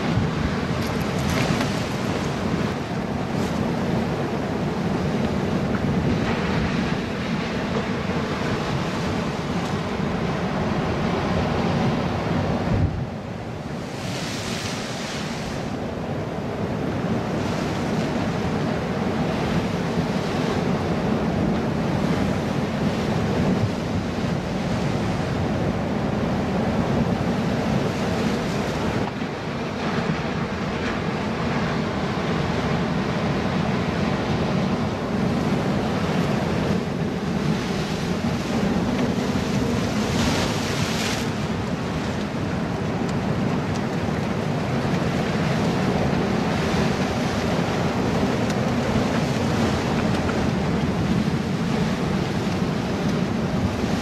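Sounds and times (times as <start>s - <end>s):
surf breaking on rocks: 0.0s - 11.6s, 13.6s - 16.0s, 35.2s - 54.0s
wind buffeting microphone: 0.0s - 54.0s.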